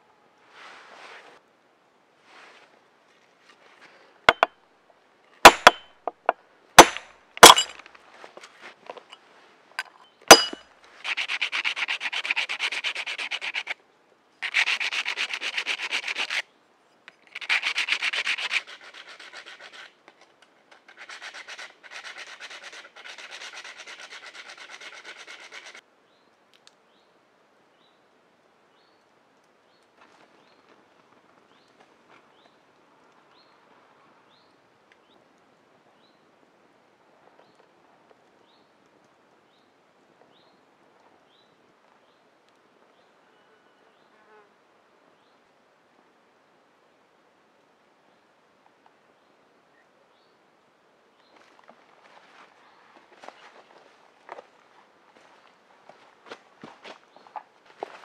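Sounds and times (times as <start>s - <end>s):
sandpaper rubbing on wood: 11.0s - 13.8s, 14.4s - 16.4s, 17.4s - 19.9s, 20.8s - 25.8s.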